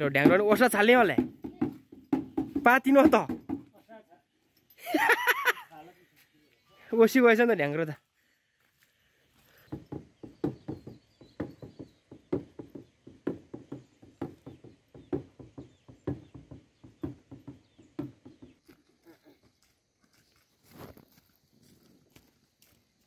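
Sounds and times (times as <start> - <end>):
frame drum beaten with stick: 0.0 - 3.7.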